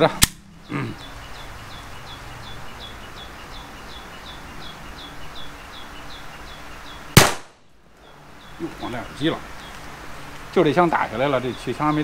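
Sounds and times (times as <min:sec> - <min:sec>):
pistol shot: 0:07.2 - 0:07.6.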